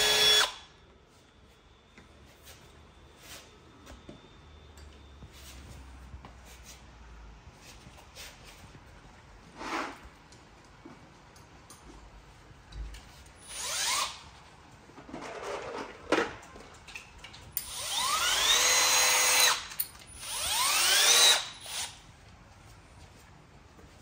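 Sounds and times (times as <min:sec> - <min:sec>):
power drill motor whine: 0:00.0 - 0:00.7, 0:13.4 - 0:14.2, 0:17.6 - 0:22.0.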